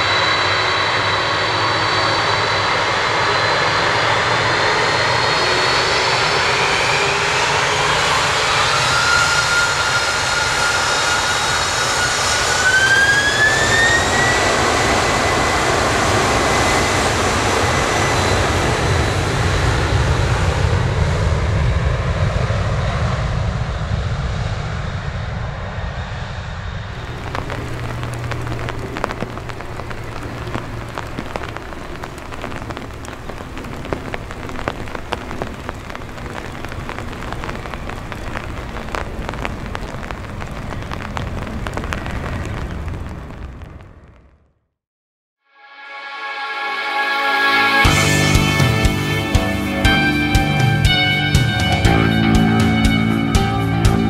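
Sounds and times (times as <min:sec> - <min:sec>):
jet engines at takeoff power: 0:00.0 - 0:44.2, 0:47.1 - 0:54.0
low jet rumble: 0:00.0 - 0:44.6, 0:47.5 - 0:54.0
rain pattering on umbrella: 0:27.0 - 0:44.4.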